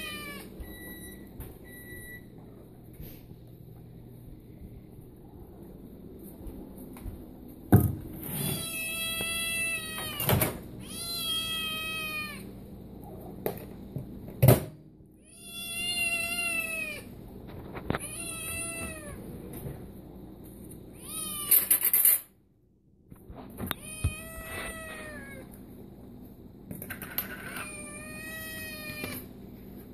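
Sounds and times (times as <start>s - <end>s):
kitten meowing loudly: 8.4s - 12.4s, 23.8s - 25.4s, 27.7s - 29.3s.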